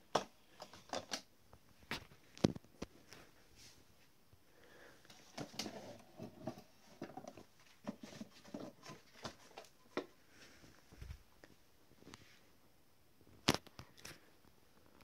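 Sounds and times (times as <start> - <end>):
rustling: 5.1 - 12.5.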